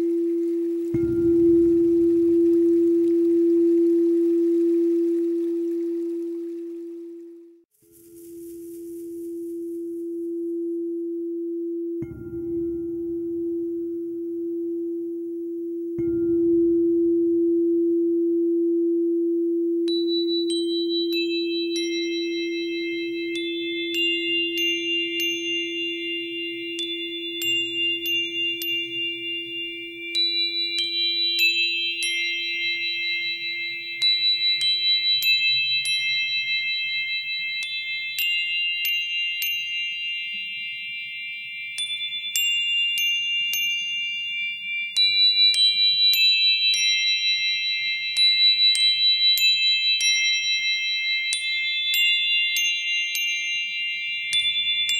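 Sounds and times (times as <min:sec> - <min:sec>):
low steady tone: 0:00.0 - 0:40.5
sustained bell-like tones: 0:00.0 - 0:54.9
tinkling chime strikes: 0:19.9 - 0:54.9.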